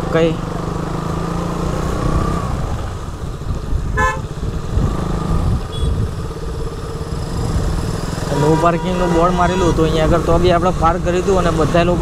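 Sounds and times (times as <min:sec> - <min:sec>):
motorcycle engine running: 0:00.0 - 0:12.0
wind on microphone: 0:02.2 - 0:08.3
vehicle horn toot: 0:04.0 - 0:04.3, 0:05.7 - 0:06.0, 0:08.3 - 0:10.0.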